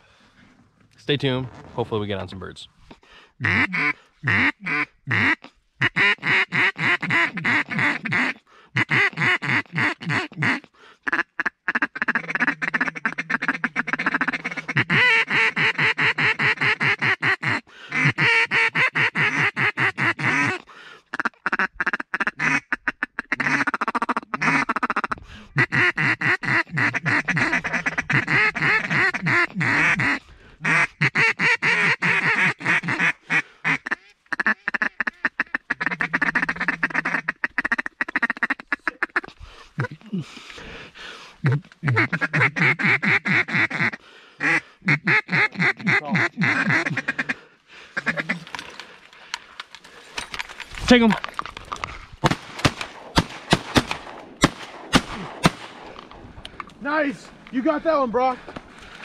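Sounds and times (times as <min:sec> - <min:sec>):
duck call quacking: 0:03.4 - 0:40.0, 0:41.1 - 0:48.7.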